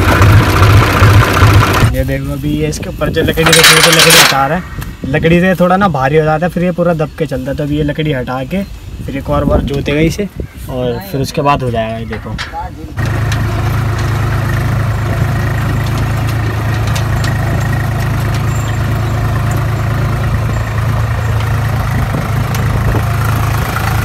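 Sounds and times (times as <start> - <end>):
tractor diesel engine running: 0.0 - 4.6, 12.9 - 24.0
faint clicks and rattles: 3.4 - 4.6, 12.1 - 24.0.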